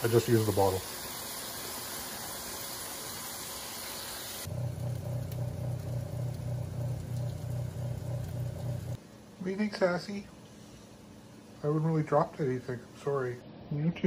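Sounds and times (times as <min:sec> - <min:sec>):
food sizzling in a wok: 0:00.0 - 0:09.0
oven fan humming: 0:00.0 - 0:13.4.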